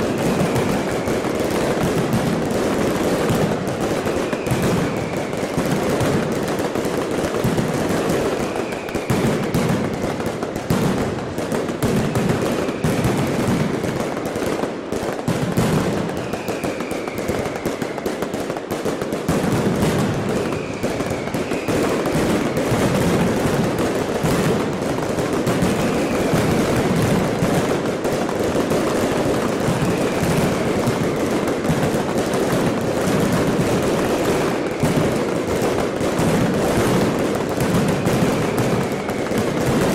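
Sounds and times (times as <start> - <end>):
fireworks crackling bangs: 0.0 - 39.9
firework falling whistle: 4.0 - 5.8, 8.4 - 10.2, 16.1 - 18.2, 20.0 - 23.0, 25.5 - 27.4, 29.3 - 31.6, 36.9 - 39.9.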